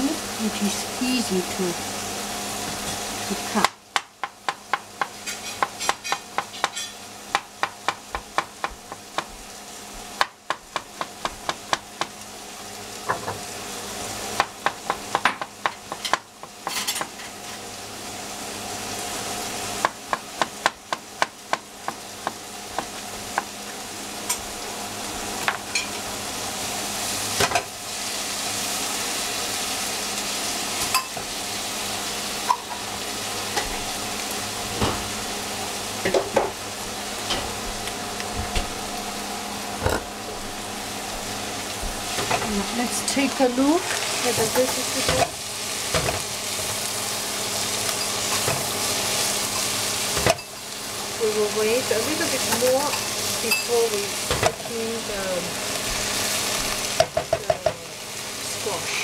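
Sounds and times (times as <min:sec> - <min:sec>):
vegetables sizzling in a frying pan: 0:00.0 - 0:59.0
knife chopping on a cutting board: 0:03.6 - 0:09.4, 0:10.2 - 0:12.2, 0:14.4 - 0:17.2, 0:19.8 - 0:23.5.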